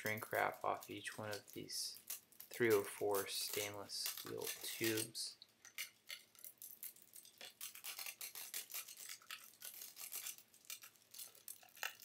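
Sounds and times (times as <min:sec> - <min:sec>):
plastic wrap crackling and tearing: 0:00.0 - 0:12.0.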